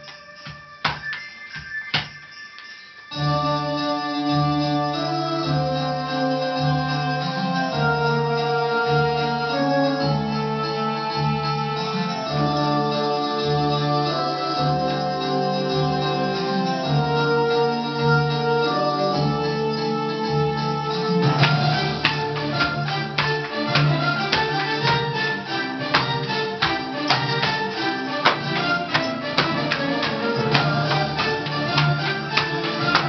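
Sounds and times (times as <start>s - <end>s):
organ-like keyboard melody: 19.5s - 33.0s.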